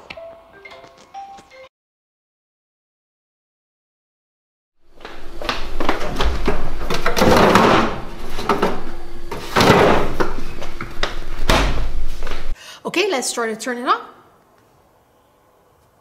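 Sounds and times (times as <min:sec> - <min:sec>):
freezer drawer sliding: 0:06.0 - 0:10.6.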